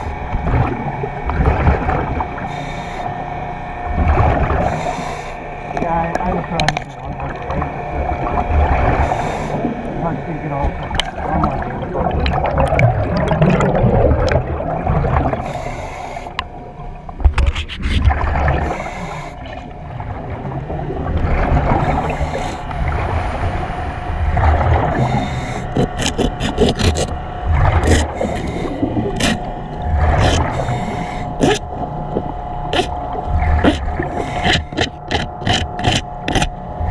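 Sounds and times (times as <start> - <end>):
air bubbles rumbling underwater: 0.0 - 2.5, 3.8 - 4.8, 5.6 - 15.5, 16.4 - 18.8, 19.4 - 36.9
diver breathing in helmet: 2.5 - 3.2, 4.6 - 5.5, 8.9 - 9.8, 15.4 - 16.4, 18.6 - 19.5, 21.7 - 24.0, 24.8 - 27.2, 27.8 - 31.7, 32.7 - 36.0
sharp clicks and knocks: 34.4 - 36.6.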